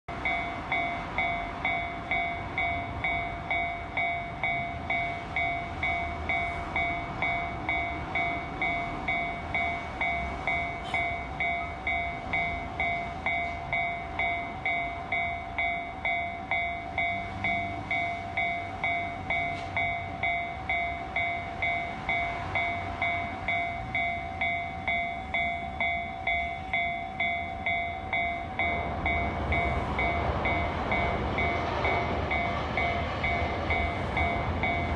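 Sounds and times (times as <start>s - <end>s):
level-crossing warning bell: 0.1s - 34.9s
low rumble of train: 0.1s - 34.9s.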